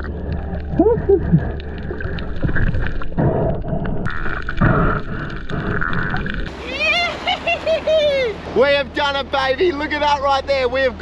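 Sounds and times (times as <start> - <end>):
underwater rumble with gurgling: 0.0 - 6.7.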